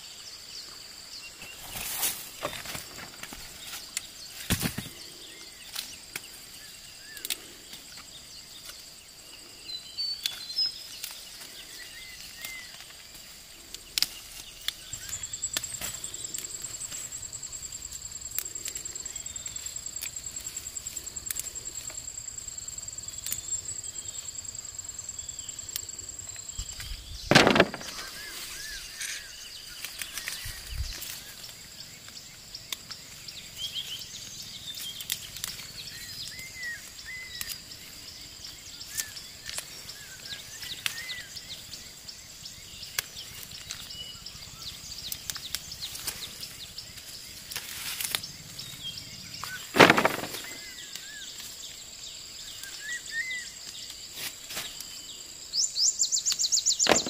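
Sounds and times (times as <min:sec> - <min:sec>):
plants rustling and clicking: 0:01.4 - 0:08.9, 0:10.2 - 0:22.1, 0:25.6 - 0:33.2, 0:34.7 - 0:38.0, 0:38.8 - 0:41.2, 0:42.9 - 0:44.0, 0:45.0 - 0:48.8, 0:49.4 - 0:51.8, 0:56.3 - 0:57.0
insect trilling: 0:01.4 - 0:54.0
bird chirps: 0:14.2 - 0:32.1, 0:55.0 - 0:57.0.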